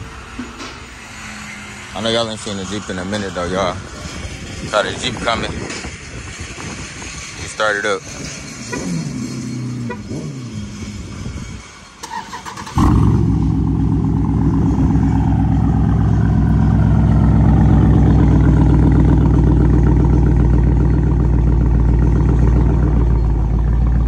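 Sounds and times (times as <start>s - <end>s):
engine cranking on starter: 12.0s - 13.4s
loud rumbling engine idle: 12.8s - 24.0s.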